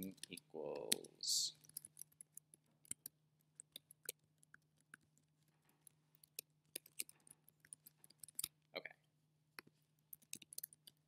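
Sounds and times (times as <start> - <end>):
keyboard keys clicking: 9.6 - 11.0.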